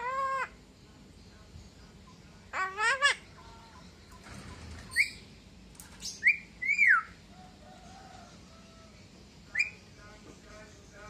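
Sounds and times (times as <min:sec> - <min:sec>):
bird whistled calls: 0:04.9 - 0:05.2, 0:06.1 - 0:07.2.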